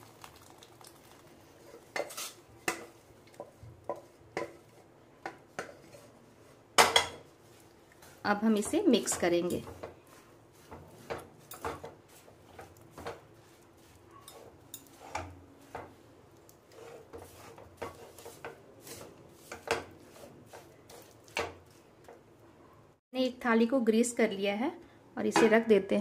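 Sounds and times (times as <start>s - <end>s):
wooden spatula scraping a pan: 1.6s - 22.2s.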